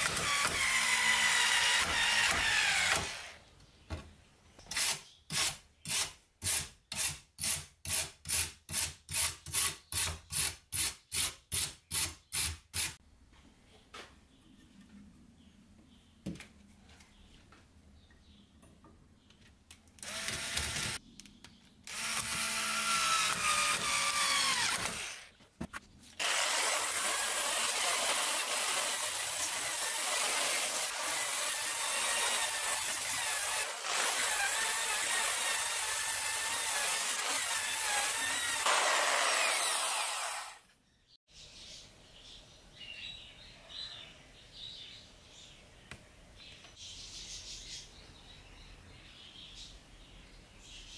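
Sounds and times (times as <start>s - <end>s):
drill wire brush scrubbing rust: 26.2s - 40.6s.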